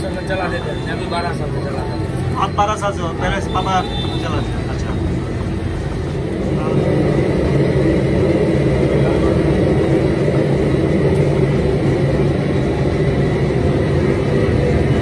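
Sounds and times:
constant hum: 0.0 - 15.0
low rumbling noise: 1.1 - 15.0.

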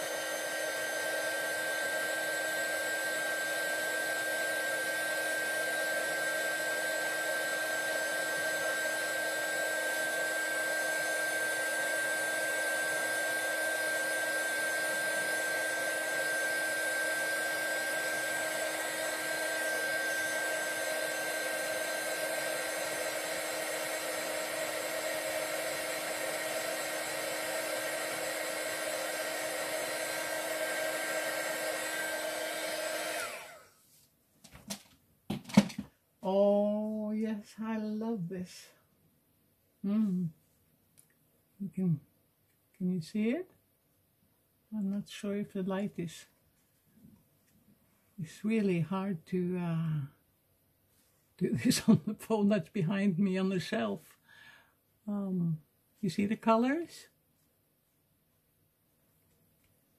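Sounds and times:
heat gun blowing air: 0.0 - 33.8.

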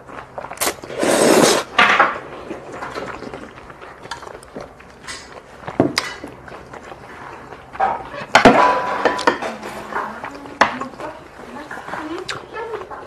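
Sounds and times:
noodles slurped: 0.0 - 8.3
utensils clinking on metal bowl: 7.8 - 12.7.

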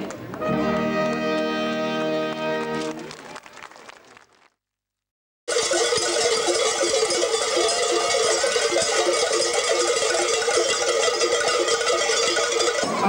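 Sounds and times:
cowbells jangling: 5.5 - 13.0.

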